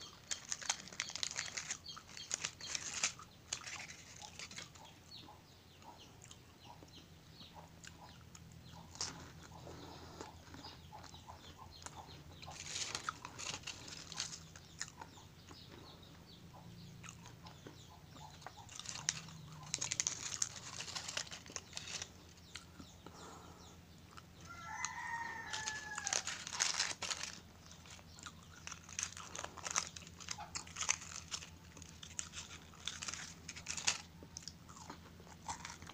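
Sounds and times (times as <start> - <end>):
foil wrappers crinkling: 0.0 - 5.0, 12.4 - 14.8, 18.4 - 22.7, 24.5 - 35.9
crunchy chewing: 0.0 - 35.9
rooster crowing: 24.4 - 26.5.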